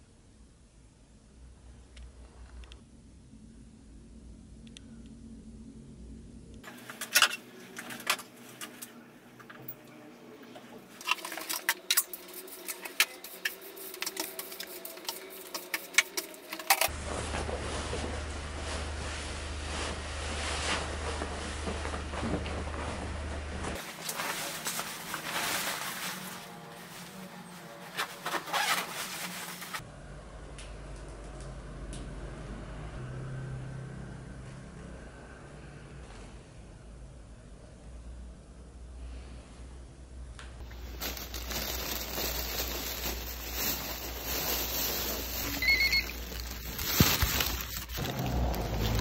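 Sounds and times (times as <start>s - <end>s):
steady low hum: 0.0s - 6.7s
nylon jacket rustling: 16.9s - 29.8s, 40.8s - 49.0s.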